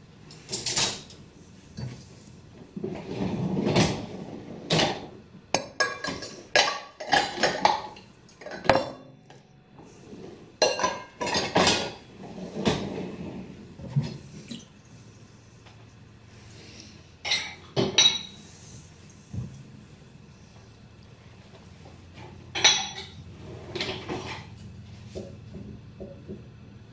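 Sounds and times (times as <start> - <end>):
dishes and silverware clinking: 0.3 - 1.2, 4.8 - 9.5, 10.6 - 12.0, 17.2 - 18.4, 22.5 - 23.2.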